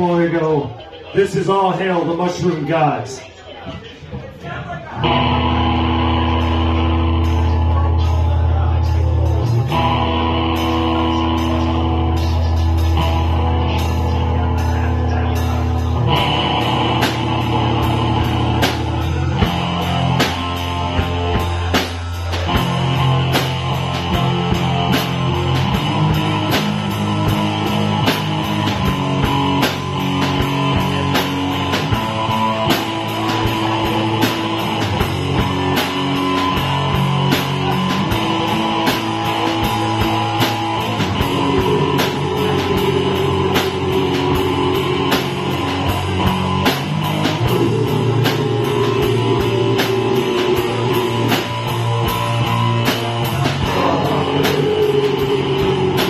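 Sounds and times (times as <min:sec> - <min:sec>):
drum kit beat: 0:04.2 - 0:56.0
electric guitar: 0:05.0 - 0:56.0
downward pitch slide: 0:53.6 - 0:56.0.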